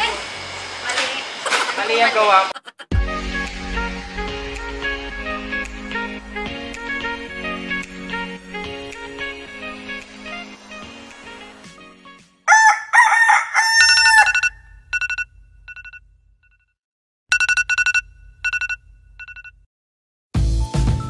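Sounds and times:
rooster crowing: 12.5s - 14.6s
phone alarm beeping: 13.8s - 16.0s, 17.3s - 19.6s.

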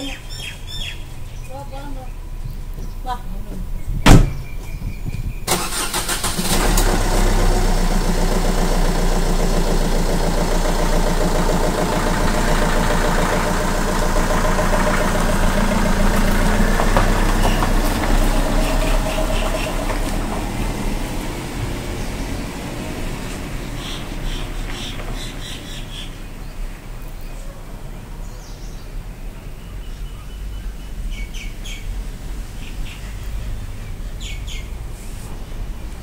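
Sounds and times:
car engine cranking and starting: 5.4s - 27.1s
car engine running: 5.5s - 27.1s.

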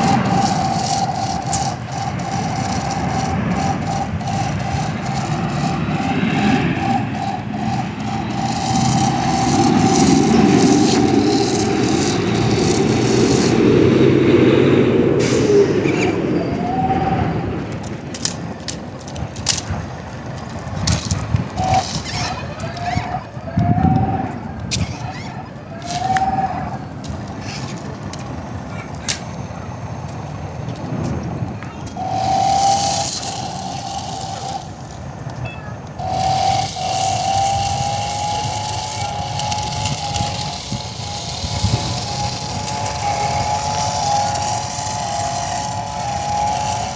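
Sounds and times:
dense rumbling noise: 0.0s - 46.9s
toy car motor whine: 0.0s - 46.9s
hiss: 15.2s - 16.0s, 36.0s - 46.9s.

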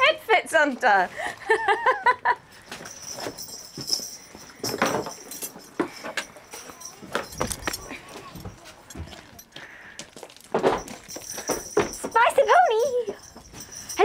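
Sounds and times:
metal clinks of horse tack: 2.5s - 14.0s
knocks and rustles: 2.8s - 12.4s.

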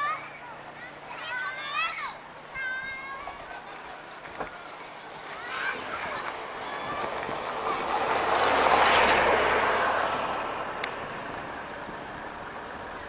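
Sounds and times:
vehicle passing by: 3.5s - 13.0s.

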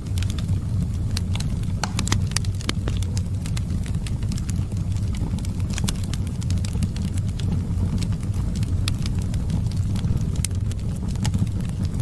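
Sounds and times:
low fire rumble: 0.0s - 12.0s
wood fire crackling: 0.0s - 12.0s.

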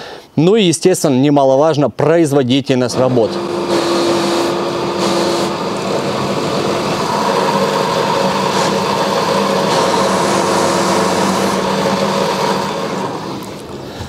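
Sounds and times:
motor humming: 2.9s - 14.0s.

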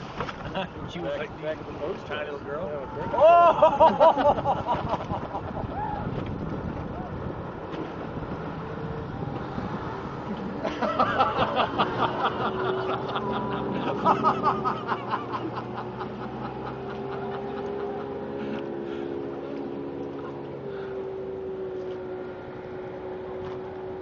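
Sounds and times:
motorboat engine humming: 0.0s - 24.0s
person laughing: 3.2s - 5.8s, 10.7s - 18.6s.

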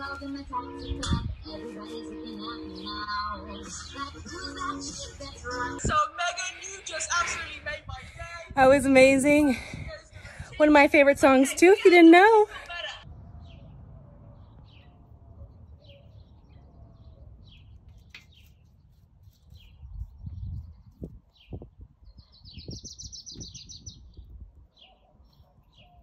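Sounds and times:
small birds chirping: 0.0s - 7.5s, 13.3s - 26.0s.

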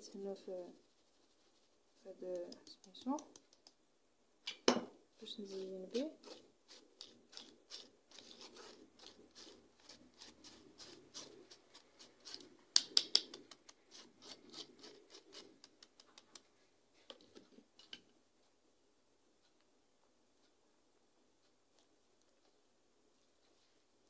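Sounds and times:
spoon scraping and tapping a sieve: 4.5s - 16.5s.

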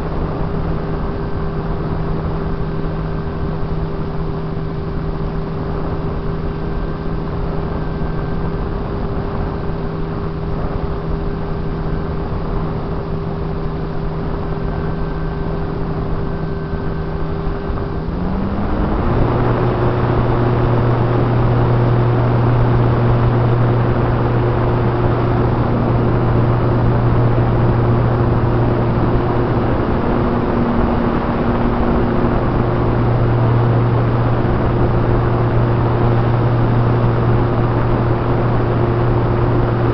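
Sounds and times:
model plane motor humming: 5.2s - 39.9s.

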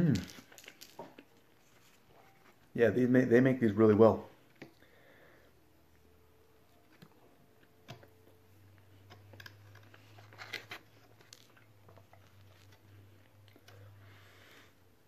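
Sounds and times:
rustling: 0.0s - 2.7s
low steady hum: 0.0s - 15.0s.

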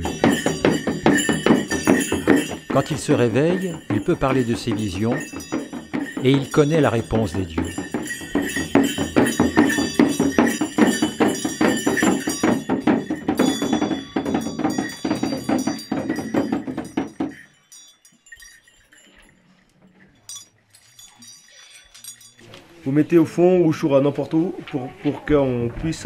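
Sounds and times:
frame drum beaten fast: 0.0s - 17.5s
faint clinks: 0.0s - 22.9s
bells jingling: 0.0s - 24.5s.

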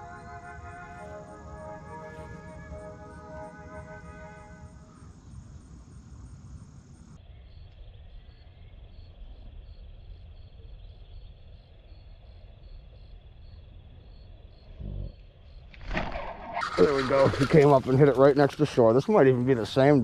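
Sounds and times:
background music: 0.0s - 5.1s
high insect trill: 0.0s - 20.0s
low outdoor rumble: 0.0s - 20.0s.

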